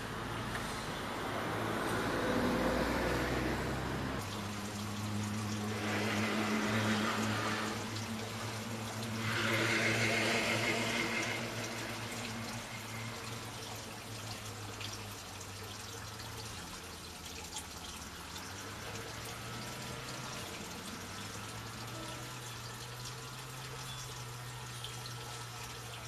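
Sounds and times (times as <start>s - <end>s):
water running and trickling: 0.0s - 26.0s
faint drips: 4.2s - 26.0s
hiss: 9.2s - 11.9s.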